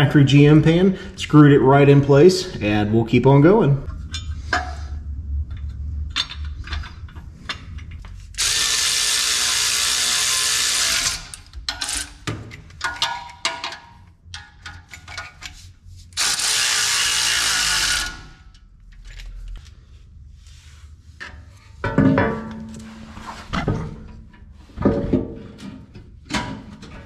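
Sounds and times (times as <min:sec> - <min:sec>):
power tool running: 0:08.4 - 0:11.4, 0:16.2 - 0:18.4.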